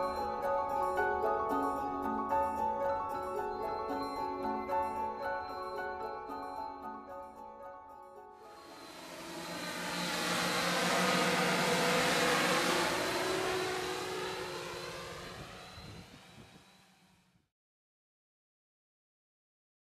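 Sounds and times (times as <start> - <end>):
aircraft flying past: 8.4 - 17.3.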